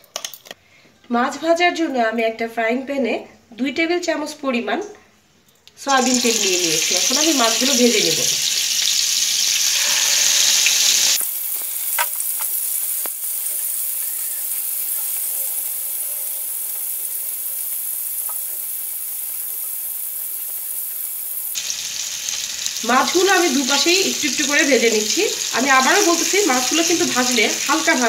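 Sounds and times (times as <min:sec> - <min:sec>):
fish sizzling in oil: 0:05.9 - 0:28.0.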